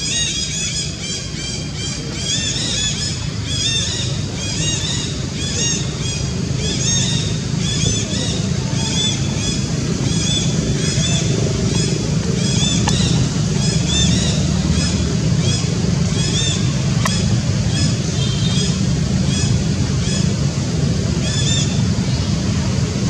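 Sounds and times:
high-pitched chirp calls: 0.0 - 20.4.

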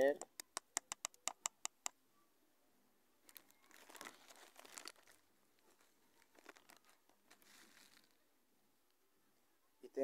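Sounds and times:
plastic packet crinkling: 3.2 - 8.2.

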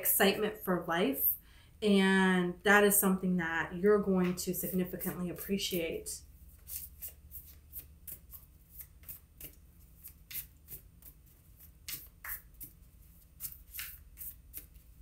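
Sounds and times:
cards being shuffled: 6.5 - 15.0.

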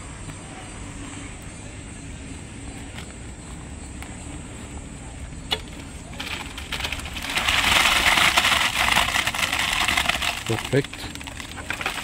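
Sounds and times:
wet concrete pouring: 6.1 - 12.0.

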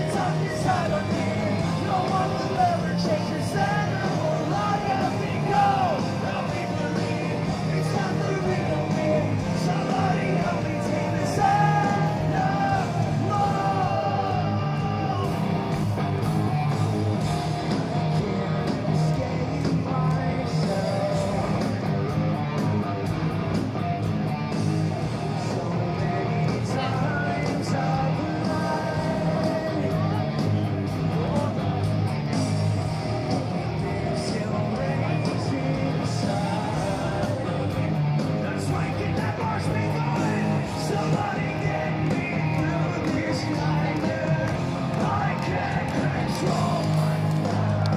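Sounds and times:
person singing: 0.0 - 15.6, 33.7 - 47.9
bass guitar: 0.0 - 47.9
distorted electric guitars: 0.0 - 47.9
drums: 0.0 - 47.9.

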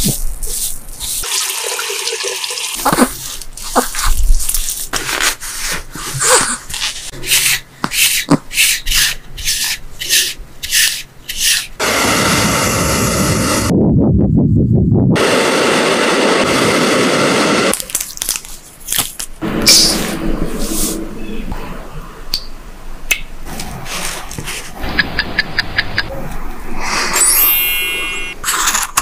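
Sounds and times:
fingers scrubbing wet fur: 0.0 - 1.4
steady rushing noise: 11.8 - 17.7.

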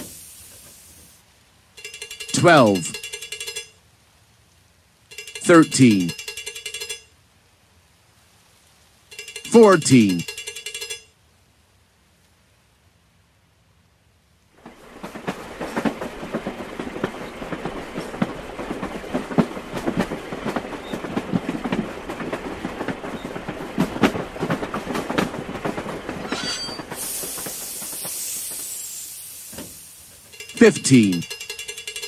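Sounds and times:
loud hiss: 0.0 - 1.2, 26.9 - 30.4
train wheels clattering on rails: 1.8 - 3.8, 5.1 - 7.1, 9.1 - 11.1, 14.6 - 32.0.

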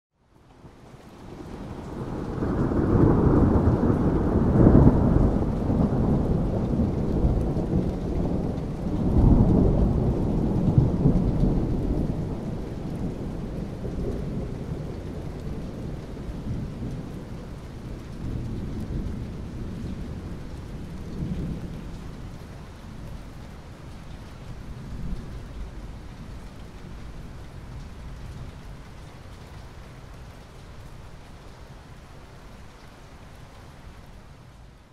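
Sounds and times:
rolling thunder: 1.6 - 22.3.

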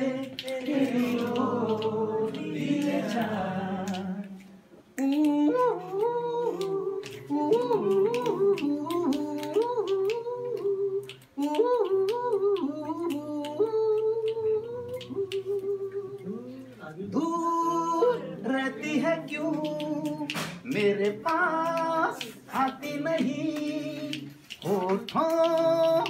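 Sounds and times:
man humming a melody: 5.0 - 18.3.

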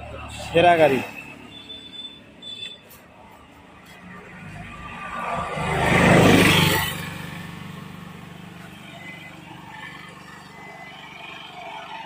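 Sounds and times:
vehicle passing close by: 4.0 - 8.8.

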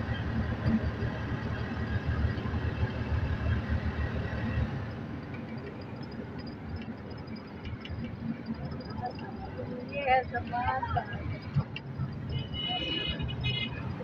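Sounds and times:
road noise: 0.0 - 14.0
vehicle engine rumbling: 0.0 - 14.0.

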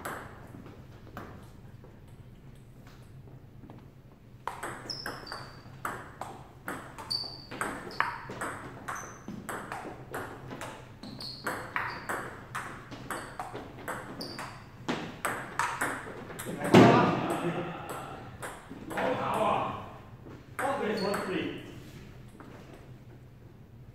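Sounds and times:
ping pong ball bouncing on table: 0.0 - 0.4, 4.4 - 19.0
ping pong ball hitting paddles: 0.0 - 0.5, 4.4 - 19.5.

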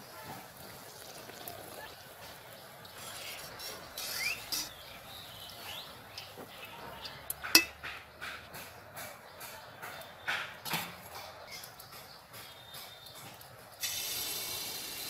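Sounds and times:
oil sizzling: 0.0 - 7.8, 13.8 - 15.0
metal skimmer scraping and clinking: 6.1 - 8.0.

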